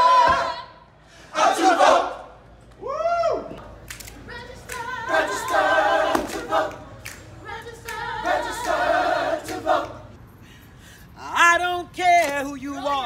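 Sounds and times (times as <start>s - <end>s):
choir singing a cappella: 0.0s - 2.4s, 4.3s - 10.4s
hand claps: 3.8s - 8.8s.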